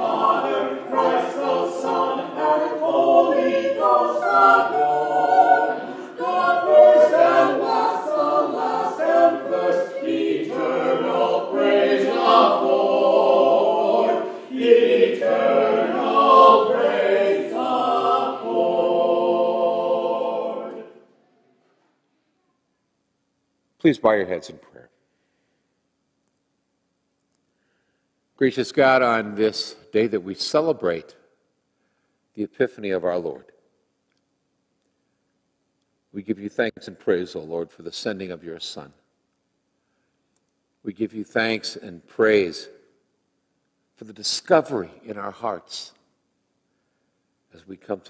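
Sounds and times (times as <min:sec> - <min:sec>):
vocal quartet singing a cappella: 0:00.0 - 0:21.1.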